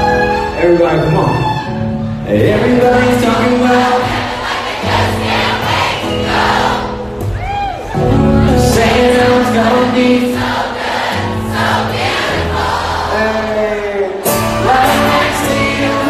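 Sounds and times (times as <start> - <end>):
live band with singing: 0.0 - 16.0
crowd singing along: 2.3 - 7.4, 8.0 - 16.0.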